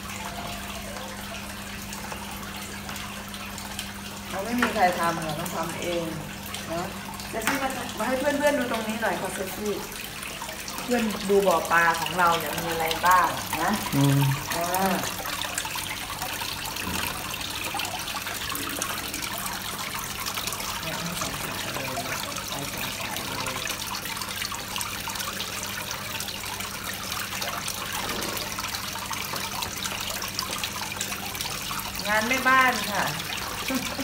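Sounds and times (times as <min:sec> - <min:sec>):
water splashing over rocks: 0:27.0 - 0:34.0.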